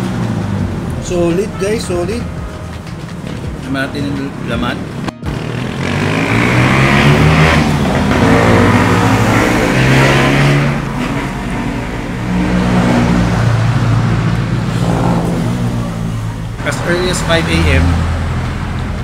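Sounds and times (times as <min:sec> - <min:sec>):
vehicle engines passing: 0:00.0 - 0:19.0.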